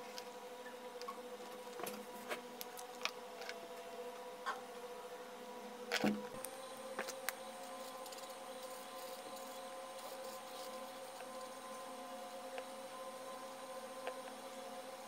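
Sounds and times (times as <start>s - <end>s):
steady hum: 0.0s - 15.0s.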